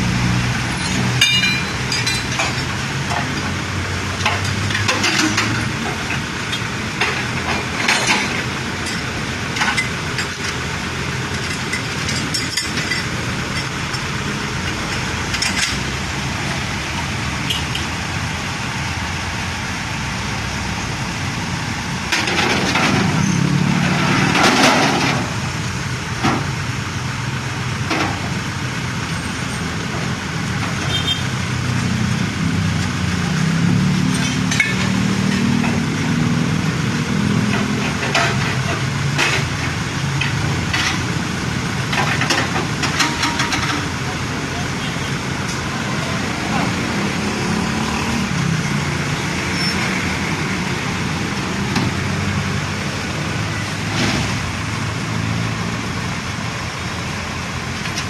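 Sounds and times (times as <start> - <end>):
street traffic: 0.0 - 58.0
vehicle passing loudly: 45.2 - 56.2.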